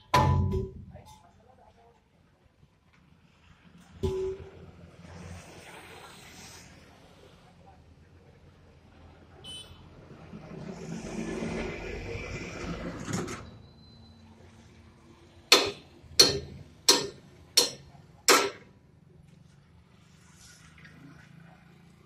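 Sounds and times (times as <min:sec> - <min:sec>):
hammer striking metal: 0:00.0 - 0:00.8, 0:15.5 - 0:18.7.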